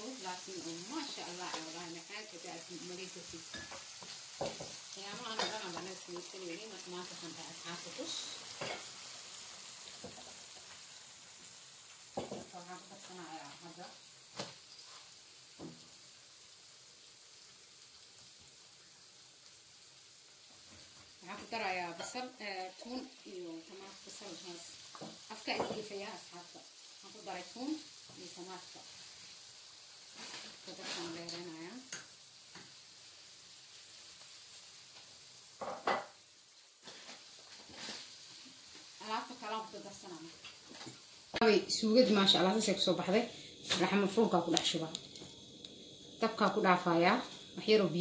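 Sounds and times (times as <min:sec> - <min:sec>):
onions frying in oil: 0:00.0 - 0:48.0
vegetables sizzling in a pan: 0:00.0 - 0:48.0
spoon clattering in a pan: 0:03.5 - 0:06.3.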